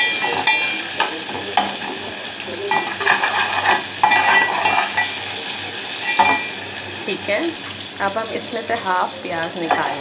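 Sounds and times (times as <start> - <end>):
onions sizzling in oil: 0.0 - 10.0
fork scraping and clinking pan: 2.7 - 5.3, 6.0 - 6.6.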